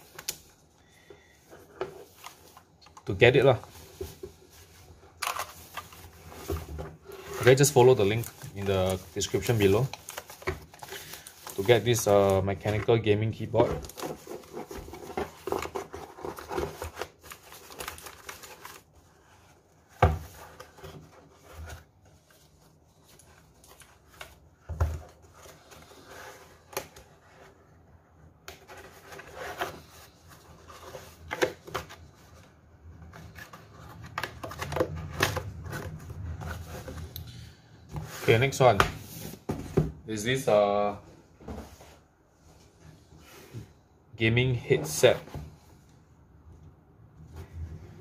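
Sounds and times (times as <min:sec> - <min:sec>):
plastic foam wrap rustling: 0:02.0 - 0:26.1.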